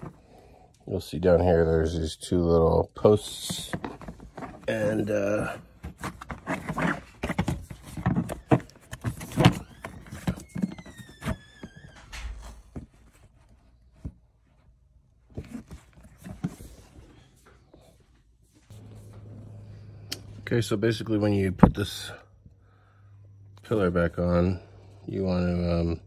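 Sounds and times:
plastic rubbing squeak: 3.6s - 13.6s.

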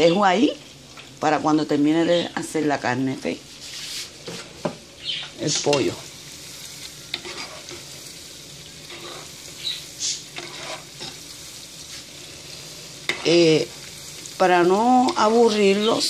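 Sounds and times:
chicken deep-frying in oil: 0.0s - 16.0s
spatula scraping and knocking pot: 7.1s - 7.8s, 10.3s - 11.2s.

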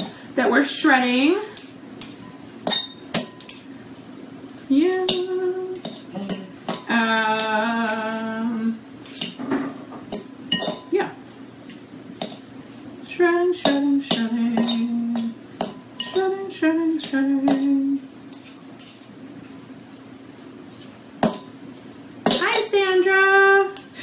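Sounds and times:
forks clinking against a dish: 1.6s - 3.7s, 5.1s - 8.4s, 9.1s - 10.9s, 11.7s - 12.4s, 13.6s - 19.2s, 22.2s - 22.7s
woman humming: 4.7s - 8.8s.

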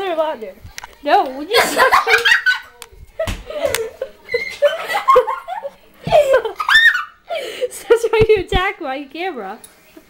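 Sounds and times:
person laughing and giggling: 1.5s - 8.0s.

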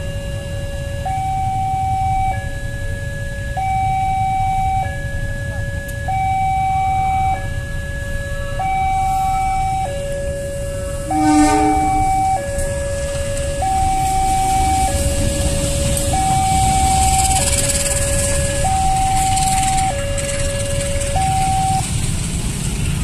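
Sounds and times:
two-tone warning siren: 0.0s - 22.2s
low rumble of traffic: 0.0s - 23.0s
horn blast: 10.7s - 21.8s.

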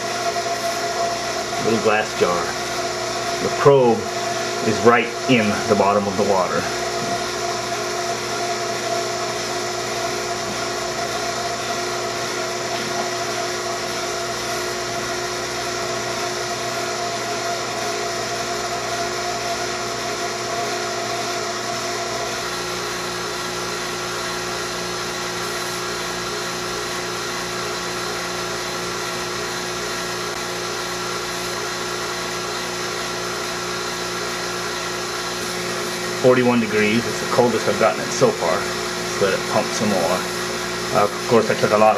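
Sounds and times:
vacuum pump humming: 0.0s - 41.9s
vacuum pump whine: 0.0s - 41.9s.

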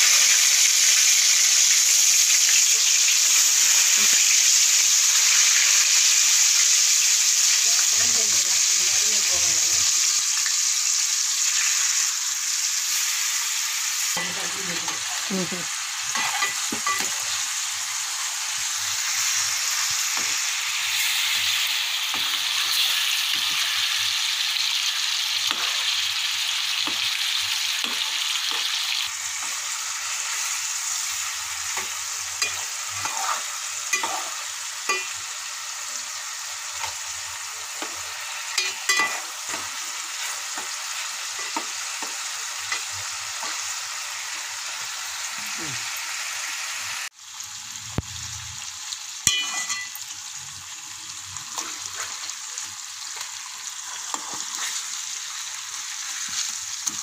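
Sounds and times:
fish sizzling in oil: 0.0s - 57.0s
fork clinking against pan: 34.9s - 35.2s, 38.6s - 39.2s, 49.3s - 49.9s.

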